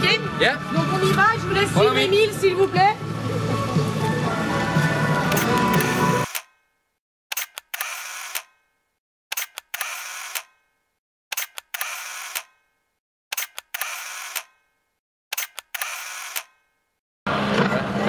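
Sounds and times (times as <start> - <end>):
camera shutter clicks: 5.3 - 6.6, 7.3 - 8.6, 9.3 - 10.7, 11.3 - 12.7, 13.3 - 14.7, 15.3 - 16.7
film advance motor whir: 5.3 - 6.6, 7.3 - 8.7, 9.3 - 10.7, 11.3 - 12.7, 13.3 - 16.8.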